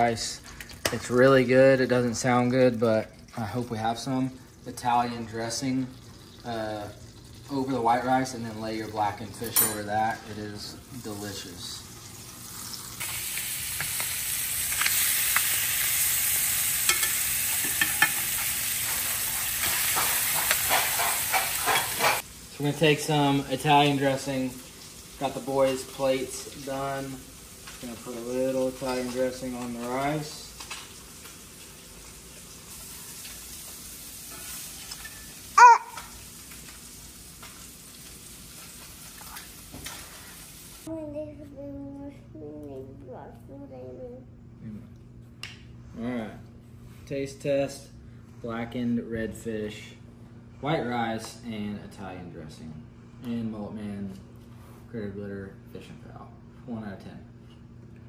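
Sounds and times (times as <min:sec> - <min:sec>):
fish fillets sizzling in a skillet: 0:11.1 - 0:22.4, 0:23.8 - 0:28.9, 0:30.1 - 0:40.9
metal spatula scraping a pan: 0:19.6 - 0:22.2
small child's voice: 0:35.6 - 0:36.2, 0:40.9 - 0:44.5.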